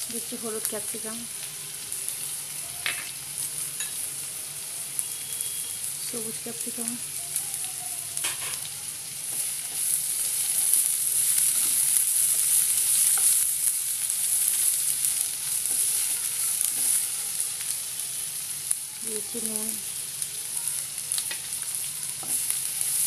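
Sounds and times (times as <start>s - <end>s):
vegetables sizzling in hot oil: 0.0s - 23.0s
spatula stirring in pan: 8.2s - 18.7s.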